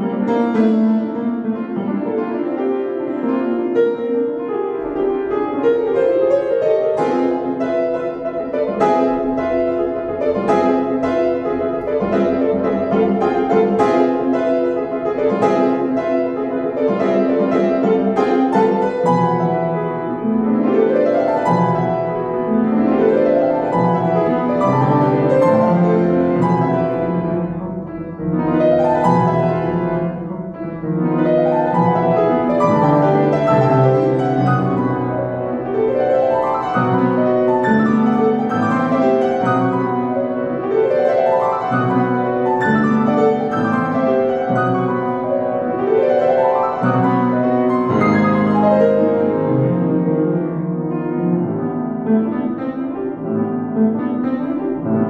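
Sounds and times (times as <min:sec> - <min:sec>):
fast classical piano passage: 0:00.0 - 0:55.0.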